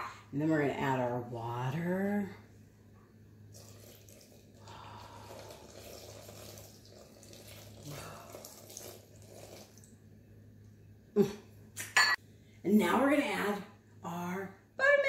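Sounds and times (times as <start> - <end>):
water pouring into a bowl: 3.5 - 10.0.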